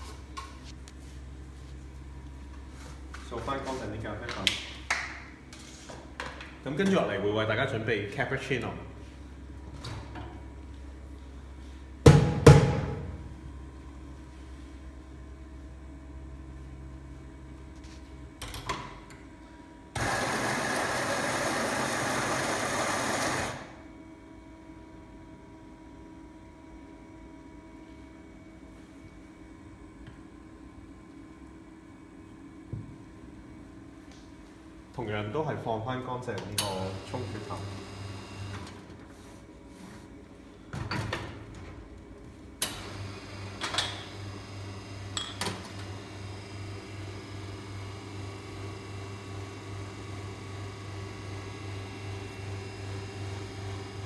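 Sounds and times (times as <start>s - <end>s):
espresso machine pulsing hum: 13.0s - 18.4s, 19.2s - 34.9s, 36.7s - 40.7s, 42.0s - 54.0s
electric coffee grinder running: 20.0s - 23.7s.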